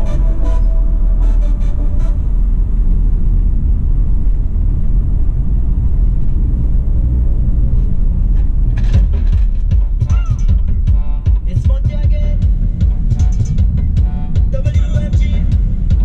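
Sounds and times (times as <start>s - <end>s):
car interior rumble: 0.0s - 16.0s.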